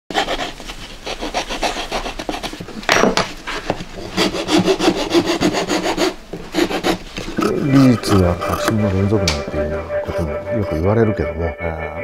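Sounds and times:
metal file rasping: 0.1s - 2.6s, 4.0s - 7.0s.

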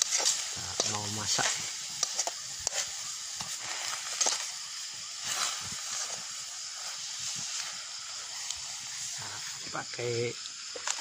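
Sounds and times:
mushrooms sizzling in a wok: 0.0s - 11.0s.

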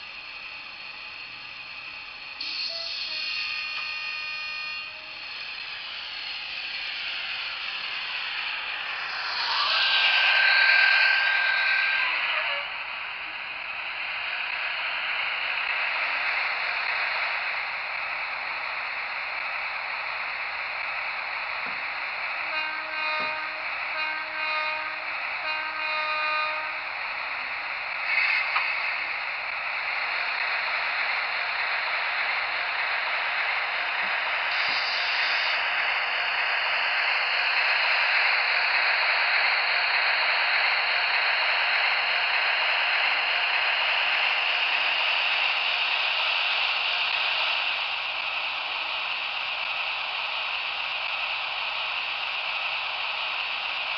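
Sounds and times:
model train running hiss: 0.0s - 53.9s
model train horn blasts: 2.4s - 5.8s, 7.2s - 12.8s, 22.4s - 26.9s.

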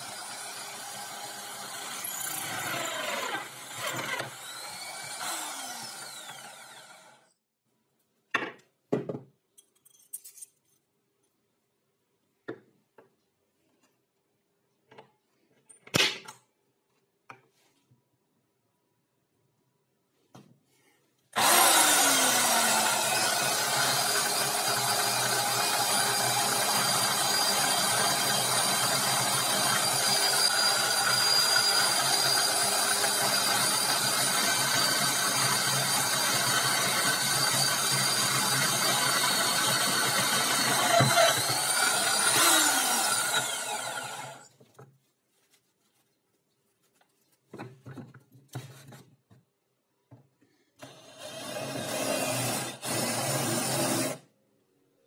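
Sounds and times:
angle grinder grinding steel: 21.4s - 44.5s.

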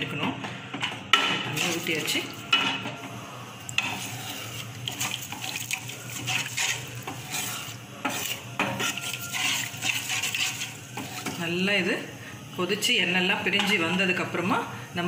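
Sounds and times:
liquid sloshing: 3.7s - 11.3s
ladle scraping metal pan: 3.8s - 11.4s.

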